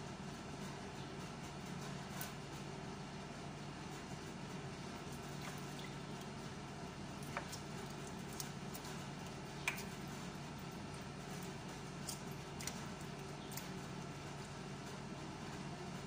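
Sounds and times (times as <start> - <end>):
steady low hum: 0.0 - 16.0
wet squishing of shrimp peeling: 7.1 - 13.8.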